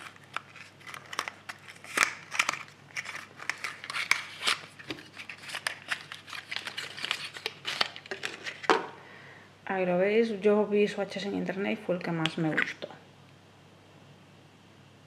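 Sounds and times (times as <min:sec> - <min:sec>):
plastic packaging crinkling and snapping: 0:00.0 - 0:08.9.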